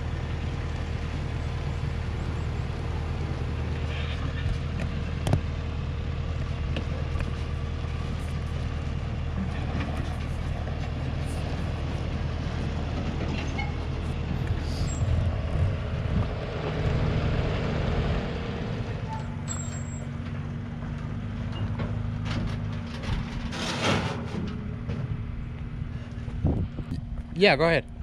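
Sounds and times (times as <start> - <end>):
diesel truck engine running: 0.0 - 28.0.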